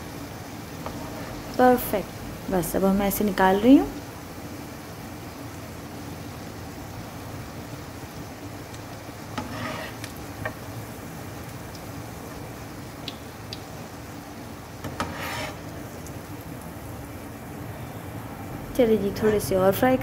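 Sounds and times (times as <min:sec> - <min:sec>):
patties sizzling in oil: 0:00.0 - 0:20.0
metal spoon scraping pan: 0:09.4 - 0:10.1, 0:14.8 - 0:15.7.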